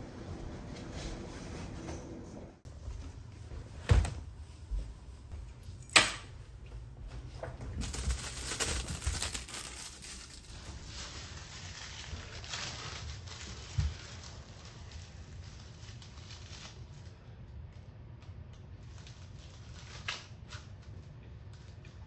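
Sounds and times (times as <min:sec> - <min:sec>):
rustling: 0:07.1 - 0:17.2.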